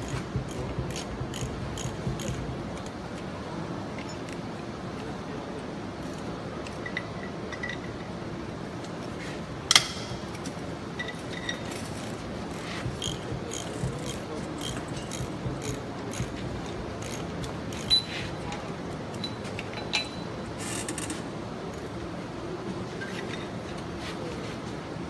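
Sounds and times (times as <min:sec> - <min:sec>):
metal tools clinking on steel: 0:11.0 - 0:20.3.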